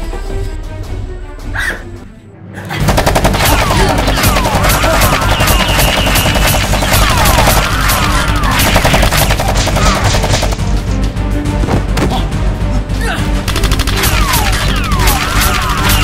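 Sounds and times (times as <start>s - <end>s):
background music: 0.0s - 16.0s
rapid automatic gunfire: 2.8s - 10.7s, 13.5s - 16.0s.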